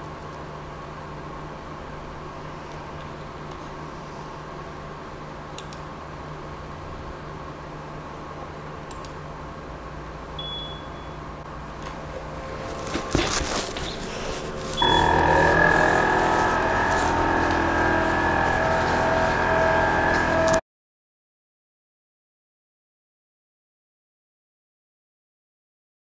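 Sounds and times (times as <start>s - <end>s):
fans whirring with high whine: 0.0s - 20.6s
short electronic beep: 10.4s - 11.2s.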